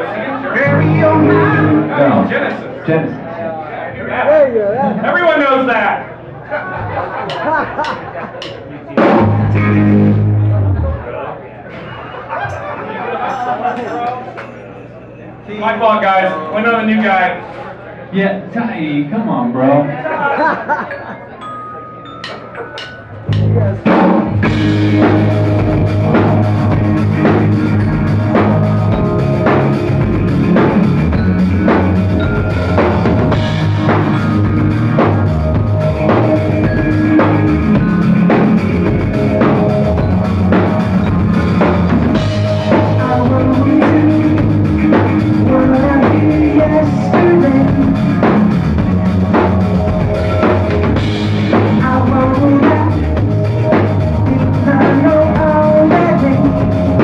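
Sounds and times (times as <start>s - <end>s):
live rock band playing: 0.5s - 2.6s, 8.8s - 11.1s, 22.2s - 57.0s.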